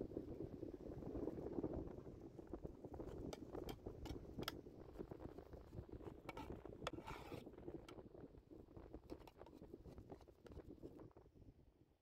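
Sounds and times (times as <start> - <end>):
spoon scraping steel pot: 3.0 - 4.5, 6.0 - 7.5, 9.1 - 10.8.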